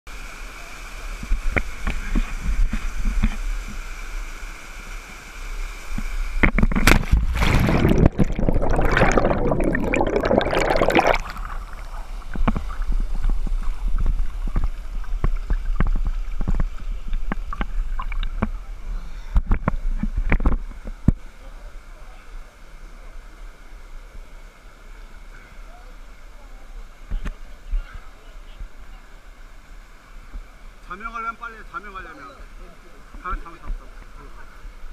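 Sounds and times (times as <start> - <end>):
rushing waterfall: 0.1 - 34.9
loud splashing and churning water: 5.9 - 20.6.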